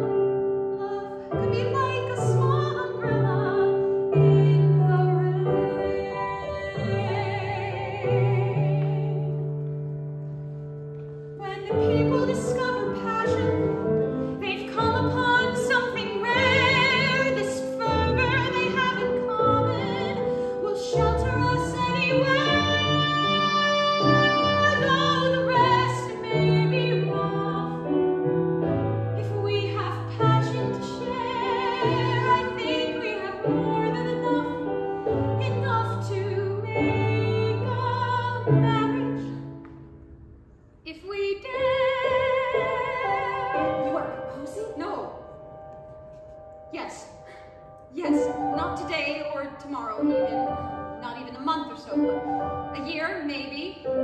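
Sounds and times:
woman singing with vibrato: 0.8 - 9.5, 11.4 - 28.0, 29.2 - 39.4, 40.9 - 45.2.

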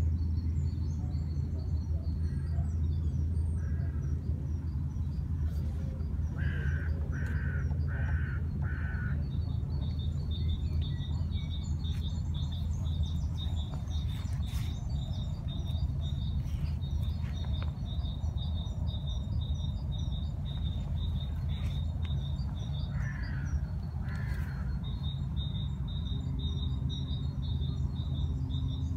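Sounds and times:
low rumble: 2.7 - 28.3
small bird chirping: 4.6 - 28.9
crow cawing: 6.4 - 9.2, 22.9 - 24.8.

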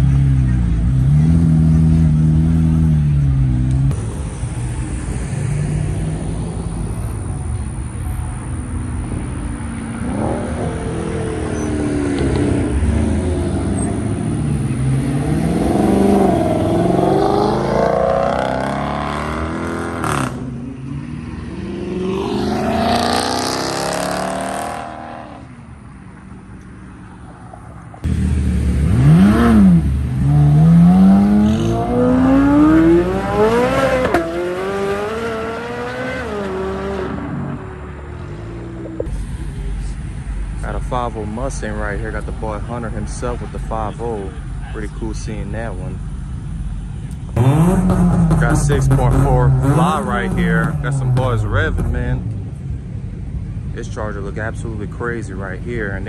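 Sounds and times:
cars accelerating away: 0.0 - 7.4, 8.0 - 44.5, 47.1 - 52.9
loud engine revving hard: 10.0 - 25.5, 28.1 - 37.5, 47.4 - 52.2.

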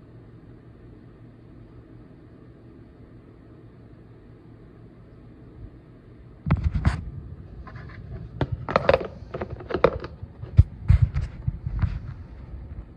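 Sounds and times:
plastic container scraping and rustling: 7.6 - 12.3.

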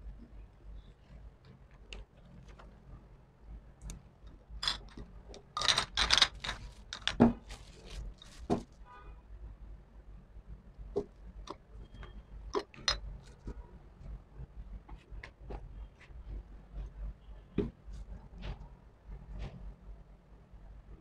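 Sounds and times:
glass jars knocking and clinking: 4.6 - 5.0, 5.6 - 7.4, 12.6 - 13.0
plastic sheet crinkling: 6.3 - 8.8.

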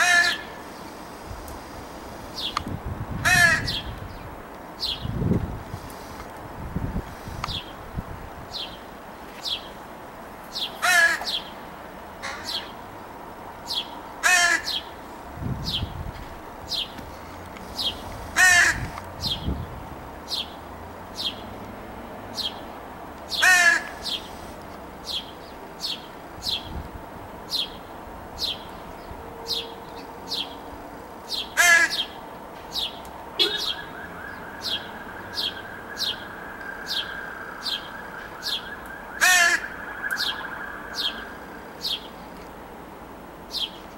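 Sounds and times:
crow calling: 0.0 - 0.6, 3.2 - 4.0, 10.7 - 11.5, 12.2 - 12.7, 14.2 - 14.9, 17.8 - 19.0, 23.3 - 24.3, 31.3 - 32.2, 33.4 - 42.1.

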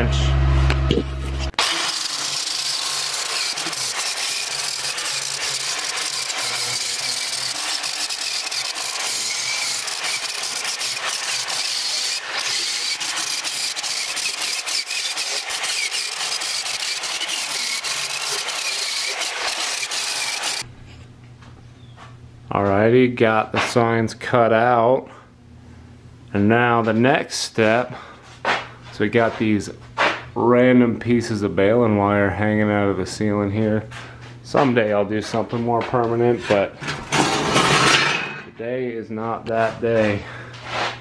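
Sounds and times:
angle grinder grinding steel: 1.2 - 20.7.

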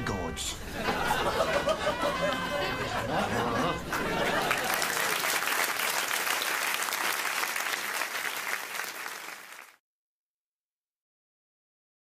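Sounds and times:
audience applauding: 1.4 - 9.8.

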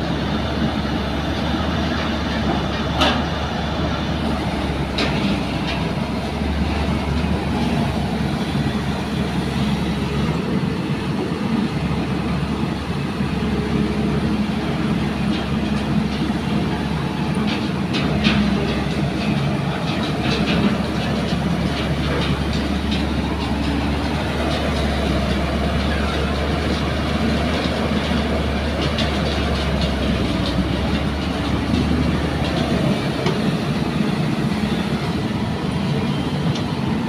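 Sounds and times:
diesel excavator engine running: 0.0 - 37.0.

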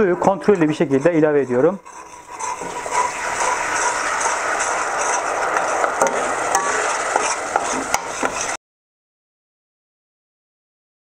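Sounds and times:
whisk clinking on metal pot: 0.0 - 8.6
whisk scraping bubbling mixture: 0.0 - 8.6.

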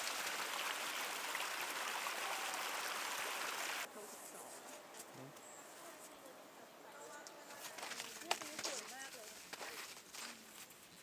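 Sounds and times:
flowing stream water: 0.0 - 3.9.

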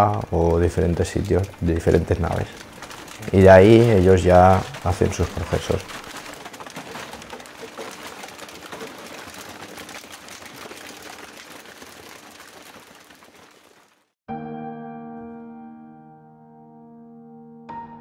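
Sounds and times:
plastic bottles crackling: 0.0 - 14.1
soft piano music: 14.3 - 18.0.

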